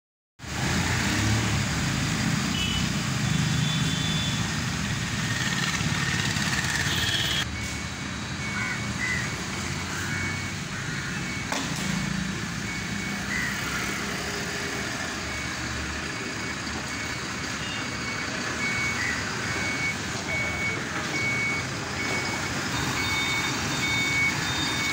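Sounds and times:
truck engine rumble: 0.4s - 24.9s
reversing beeper: 5.4s - 24.9s.

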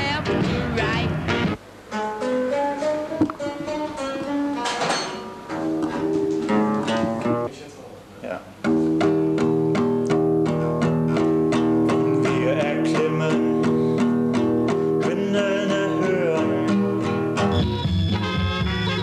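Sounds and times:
recorded music: 0.0s - 7.5s, 8.6s - 19.0s
classical guitar strumming: 0.1s - 7.5s, 8.6s - 19.0s.

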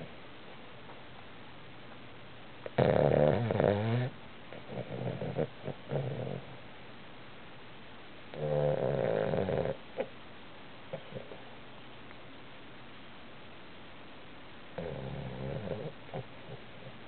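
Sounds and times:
dog snoring: 2.6s - 6.6s, 8.3s - 10.1s, 10.9s - 11.4s, 14.8s - 17.0s.

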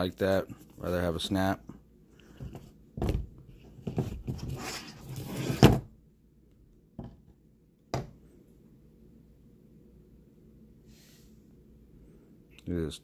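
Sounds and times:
knocks on table: 7.9s - 8.2s.

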